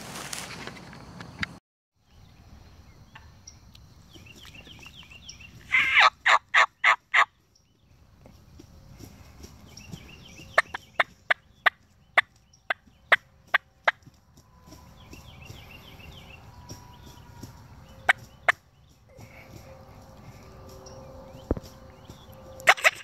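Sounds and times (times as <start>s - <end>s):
turkey rattling calls: 4.2s - 7.5s, 9.1s - 14.2s, 14.9s - 20.8s, 22.1s - 23.0s
turkeys calling sharp notes: 4.4s - 7.4s, 9.1s - 21.0s, 21.6s - 23.0s.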